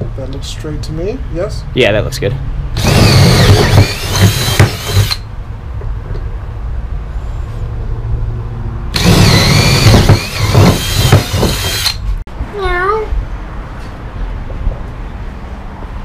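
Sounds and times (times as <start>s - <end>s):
cordless drill whining: 2.8s - 5.2s, 9.0s - 12.0s.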